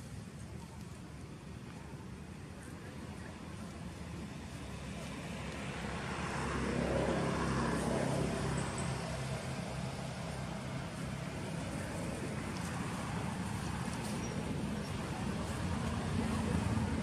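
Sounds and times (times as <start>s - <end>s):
vehicle passing by: 4.1s - 17.0s.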